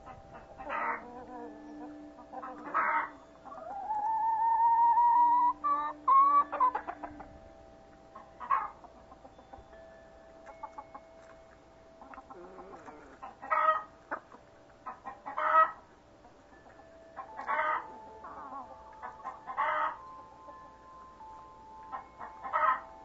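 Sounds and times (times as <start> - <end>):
quiet chicken clucks: 0.0 - 7.4, 8.2 - 9.4, 12.0 - 20.7, 21.9 - 22.9
chickens calling loudly: 0.0 - 9.7, 10.4 - 20.9, 21.8 - 23.0.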